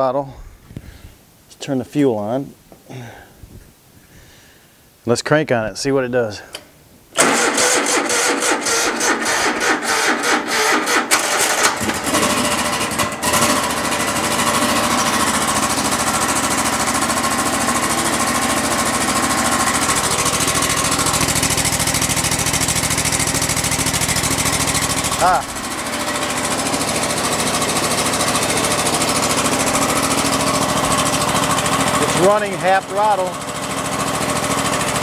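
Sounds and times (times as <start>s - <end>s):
electric starter cranking engine: 7.2s - 35.0s
mower engine running: 7.2s - 35.0s.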